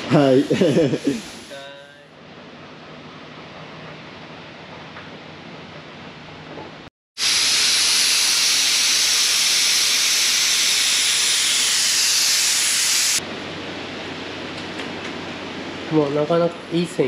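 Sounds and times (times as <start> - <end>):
air gun hissing: 0.0 - 1.6, 7.2 - 13.2.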